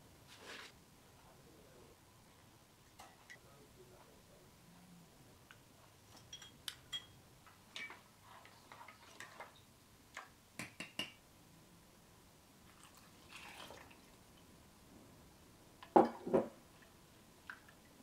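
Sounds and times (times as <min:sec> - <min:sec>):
wooden spatula stirring syrup: 0:07.8 - 0:09.7.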